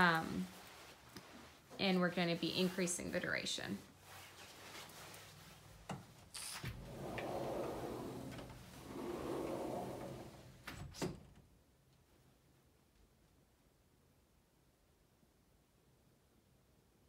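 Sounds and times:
sliding door rumbling on track: 0:06.7 - 0:10.6.

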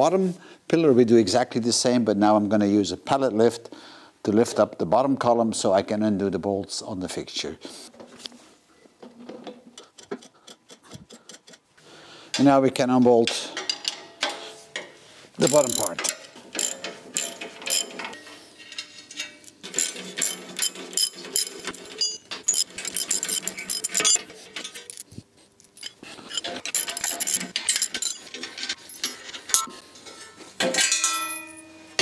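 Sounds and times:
ratchet wrench clicking: 0:15.4 - 0:18.0
metallic clinks of spanners: 0:15.4 - 0:29.7
steel clanging and ringing: 0:28.9 - 0:32.0.

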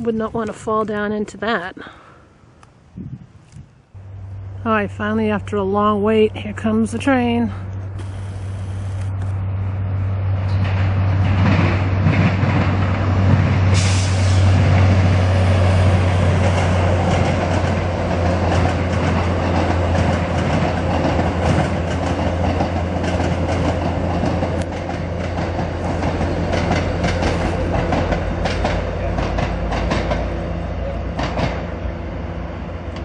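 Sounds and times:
diesel train drone: 0:00.0 - 0:33.0
train wheels clicking on rail joints: 0:10.3 - 0:33.0.

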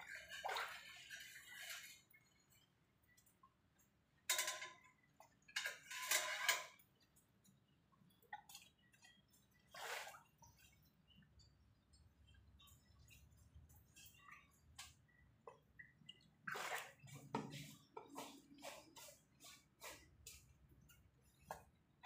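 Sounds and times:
water splashing and sloshing: 0:00.0 - 0:22.0.

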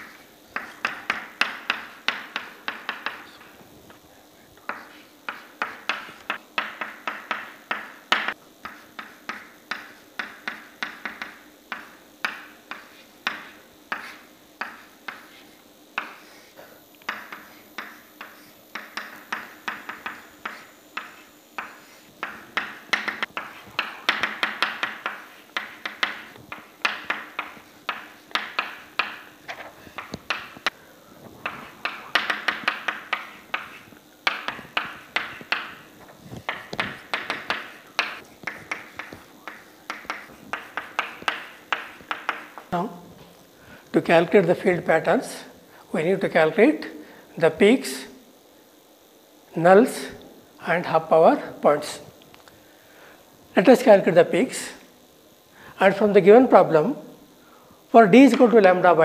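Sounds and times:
chalk tapping on a blackboard: 0:00.0 - 0:03.5, 0:04.7 - 0:30.8, 0:31.4 - 0:42.7.

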